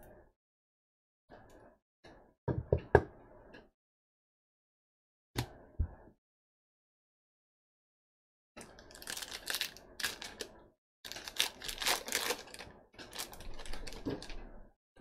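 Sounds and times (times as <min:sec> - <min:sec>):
plastic wrapper crinkling and tearing: 0:08.7 - 0:10.5, 0:11.1 - 0:14.4.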